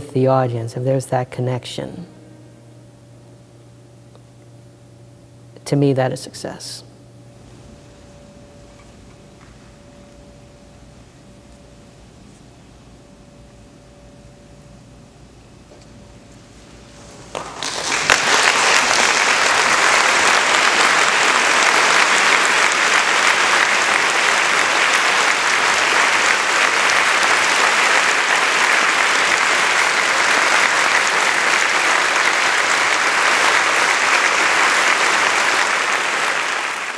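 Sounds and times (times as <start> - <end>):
faint held note: 2.0 - 4.8
audience applauding: 17.2 - 36.9.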